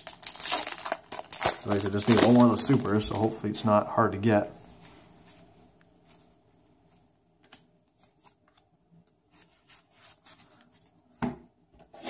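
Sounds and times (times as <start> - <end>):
cards clicking and rustling: 0.3 - 3.3.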